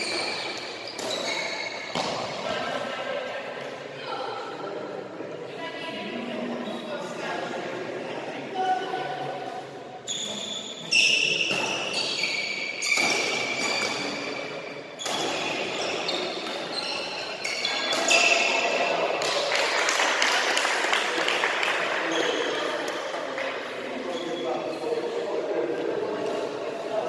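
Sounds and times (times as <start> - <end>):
shoes squeaking on court: 0.0 - 2.4, 10.0 - 18.9.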